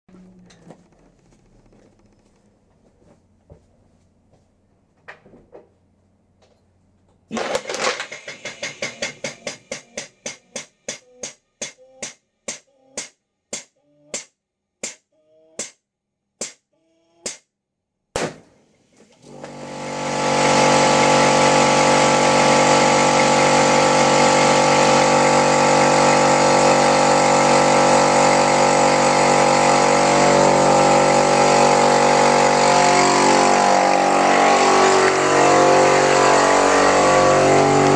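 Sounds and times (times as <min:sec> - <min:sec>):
plastic bottle bursting bang: 0:18.1 - 0:18.6
motor drone: 0:19.2 - 0:37.9.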